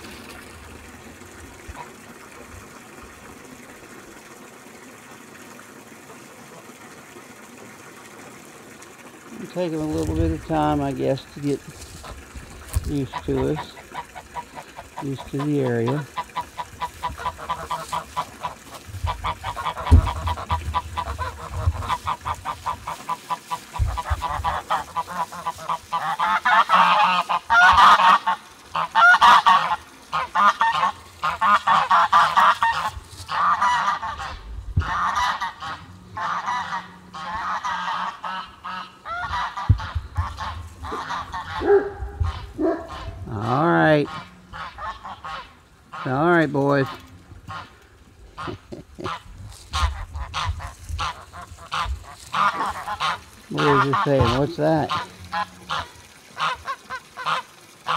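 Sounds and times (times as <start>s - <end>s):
geese honking: 11.8s - 47.8s, 48.4s - 57.9s.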